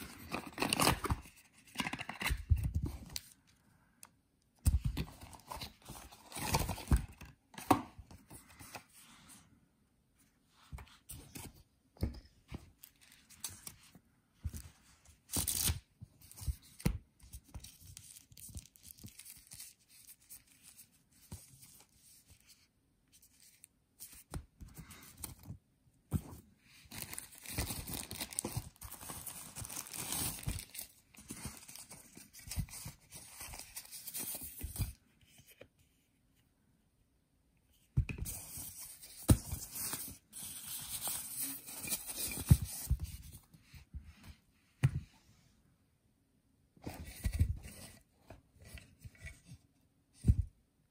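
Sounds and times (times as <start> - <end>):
plastic wrap and paper crinkling: 26.9 - 30.9.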